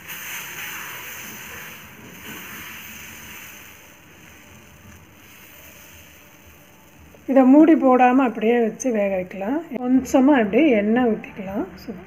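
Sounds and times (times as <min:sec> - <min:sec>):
batter sizzling on griddle: 0:00.0 - 0:09.4.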